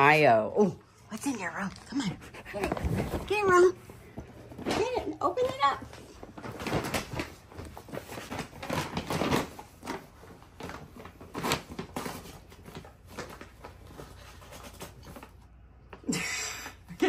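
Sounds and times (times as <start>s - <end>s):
paper gift bag rustling: 2.6s - 15.4s.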